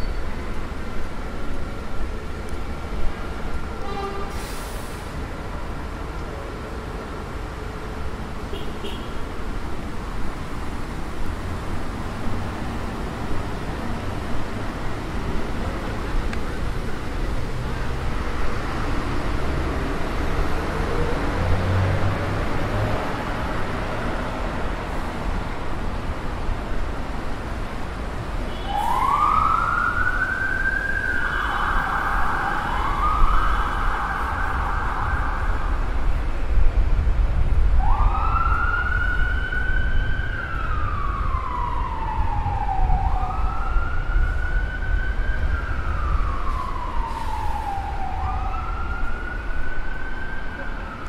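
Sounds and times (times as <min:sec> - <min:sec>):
city traffic rumble: 0:00.0 - 0:51.0
emergency vehicle siren wailing: 0:28.5 - 0:36.3, 0:37.8 - 0:51.0.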